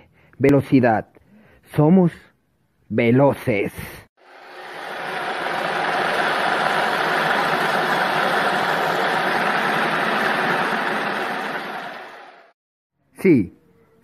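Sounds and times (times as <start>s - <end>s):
skate wheels rolling on asphalt: 4.2s - 12.5s.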